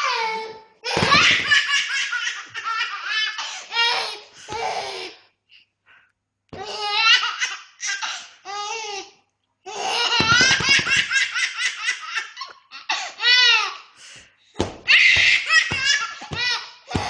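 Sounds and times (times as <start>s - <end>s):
baby laughing: 0.0s - 4.2s, 6.6s - 9.0s, 9.7s - 13.8s, 14.9s - 17.0s
baby squealing: 14.9s - 17.0s.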